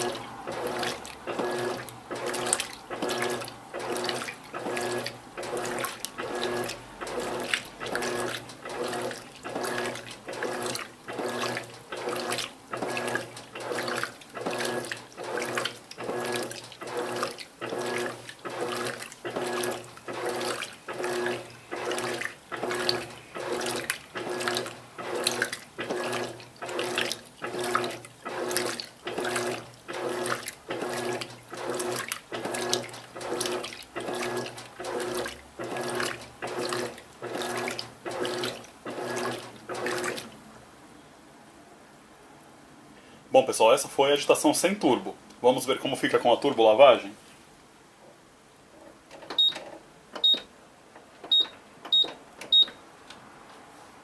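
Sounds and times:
washing machine water sloshing: 0.0 - 40.5, 51.1 - 52.8
washing machine drive hum: 0.0 - 40.7, 48.0 - 54.0.

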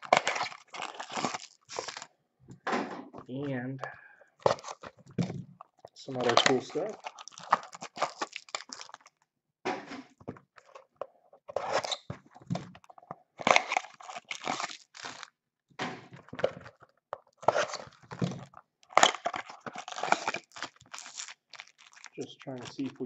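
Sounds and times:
plastic wrappers crinkling and tearing: 0.0 - 2.1, 4.3 - 9.2, 11.5 - 15.4, 16.1 - 23.0.

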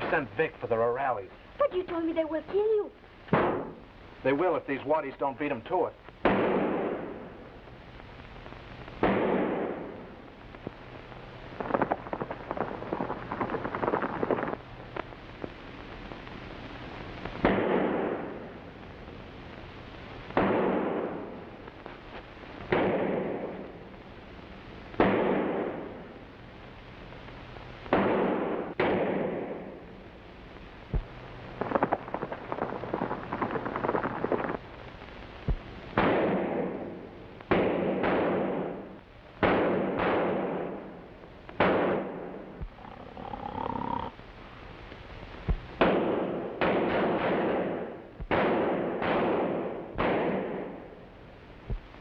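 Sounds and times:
rifle shots with echoing tail: 3.3 - 3.8, 6.2 - 7.3, 9.0 - 10.0, 17.4 - 18.4, 20.4 - 21.3, 22.7 - 23.6, 25.0 - 25.9, 27.9 - 29.7, 36.0 - 38.8, 39.4 - 40.9, 41.6 - 42.4, 45.8 - 50.8
rapid crackling shots: 3.3 - 3.9, 6.2 - 7.3, 9.0 - 10.0, 11.5 - 14.6, 17.3 - 18.5, 20.3 - 21.4, 22.6 - 23.7, 25.0 - 26.0, 27.9 - 29.8, 31.0 - 34.8, 35.5 - 44.0, 45.5 - 50.9.

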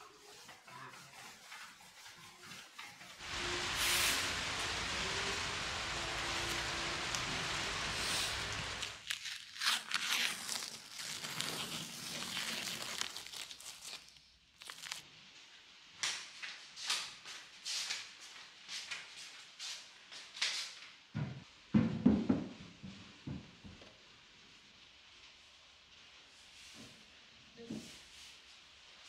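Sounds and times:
tape peeling off: 3.2 - 15.0.

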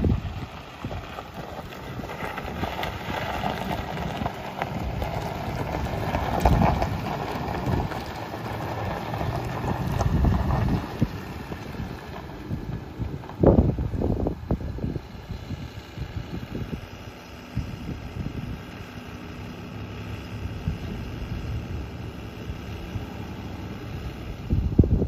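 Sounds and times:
wind buffeting microphone: 0.0 - 18.9, 24.0 - 25.0
pickup truck engine running: 0.0 - 25.0.

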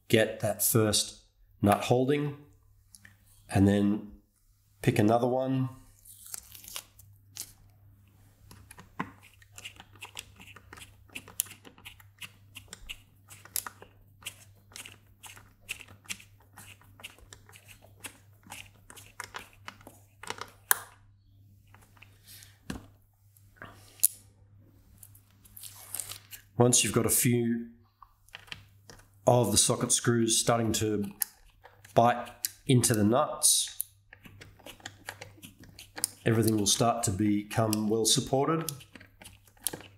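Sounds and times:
screwdriver clicks and scrapes: 8.5 - 21.0, 34.1 - 36.6, 38.6 - 39.9.

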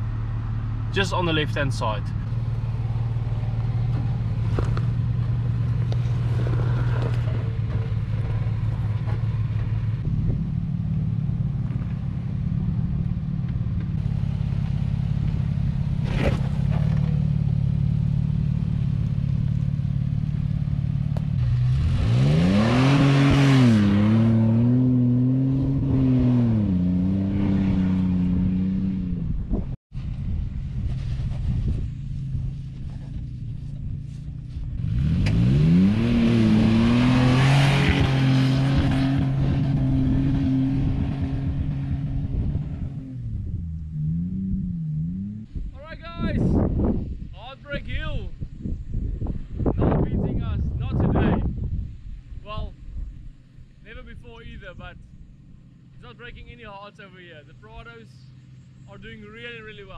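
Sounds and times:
car engine running under load: 0.0 - 45.8.

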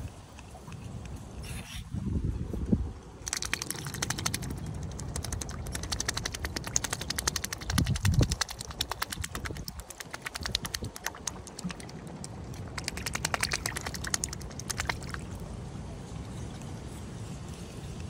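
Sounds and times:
wind rumble on microphone: 0.0 - 18.0
swan bill clicking in water: 3.2 - 15.4.

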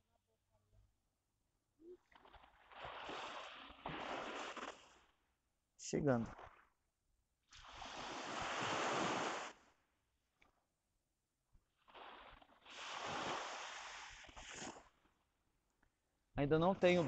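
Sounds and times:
surf washing onto beach: 2.8 - 5.0, 7.6 - 9.6, 11.9 - 14.8.

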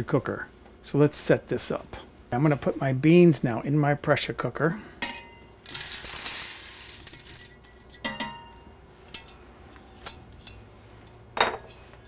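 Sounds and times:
beans sliding into a metal pot: 5.6 - 7.5.

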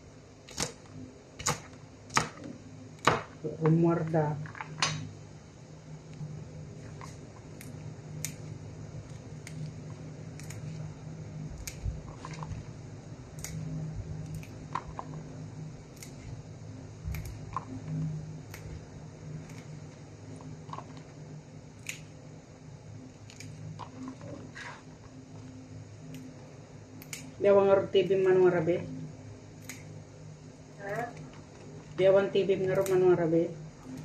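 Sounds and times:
steady low hum: 0.0 - 34.0
snow peas snapping: 10.3 - 10.8.

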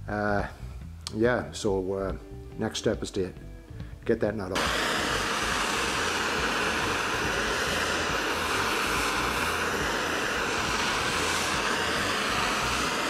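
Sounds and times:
gas torch hissing: 4.5 - 13.0.

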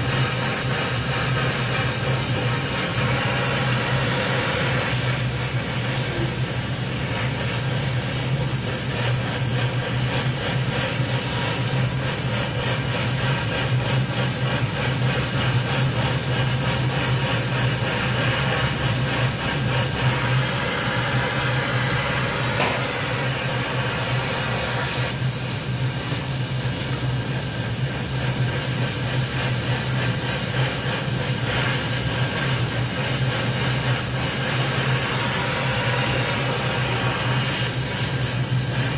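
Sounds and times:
welding torch flame hissing: 0.0 - 38.9.

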